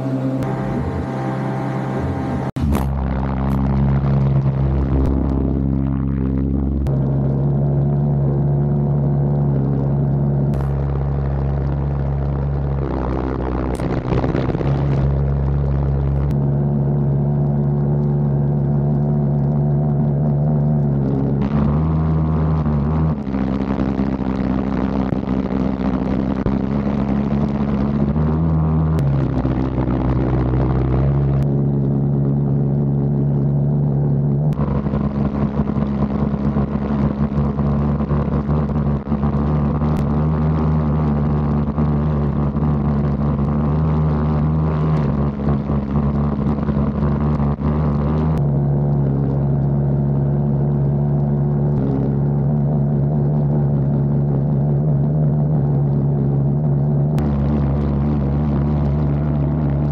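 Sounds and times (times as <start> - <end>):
pulsejet engine droning: 0.0 - 18.6.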